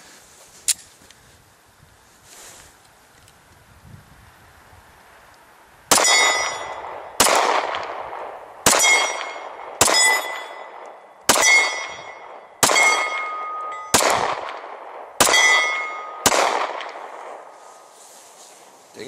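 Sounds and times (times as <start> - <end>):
pistol shots ringing: 5.9 - 17.4.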